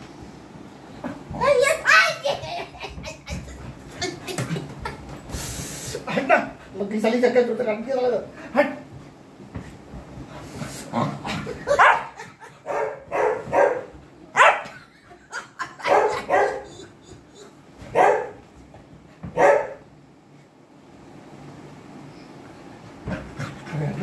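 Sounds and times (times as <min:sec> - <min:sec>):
dog barking in play: 0:11.7 - 0:14.8, 0:15.8 - 0:16.9, 0:17.9 - 0:18.4, 0:19.3 - 0:19.8.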